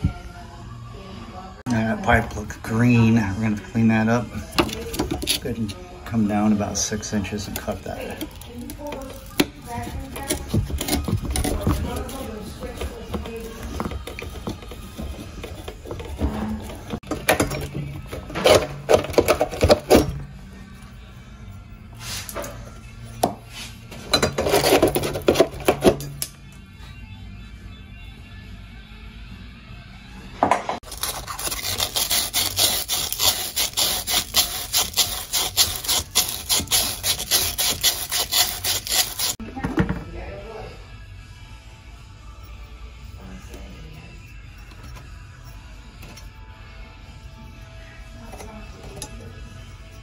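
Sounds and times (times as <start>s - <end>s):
scraping and knocking on copper pipe: 4.5s - 5.6s, 7.6s - 20.2s
sand cloth scraping copper pipe: 31.0s - 39.4s.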